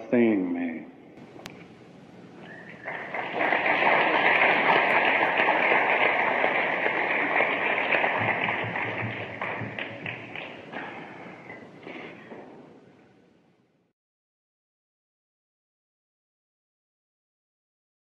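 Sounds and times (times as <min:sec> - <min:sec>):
crowd applauding and cheering: 0:02.4 - 0:11.7.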